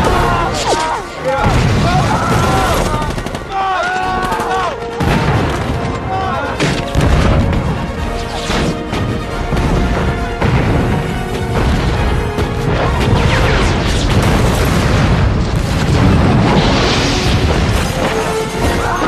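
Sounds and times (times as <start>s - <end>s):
film score music: 0.0s - 19.0s
large fiery blast: 1.3s - 3.0s, 6.8s - 18.5s
artillery shells exploding: 1.4s - 3.2s, 5.0s - 7.9s, 8.9s - 18.9s.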